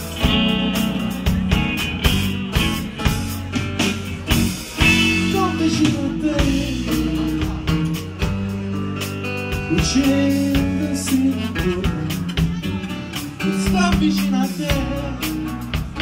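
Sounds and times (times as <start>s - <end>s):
bass guitar: 0.0s - 16.0s
drum kit: 0.0s - 16.0s
electric guitars: 0.0s - 16.0s.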